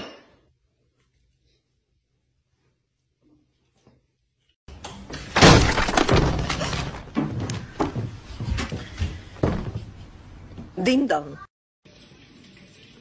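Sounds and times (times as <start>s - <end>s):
objects crashing and breaking: 5.0s - 7.6s.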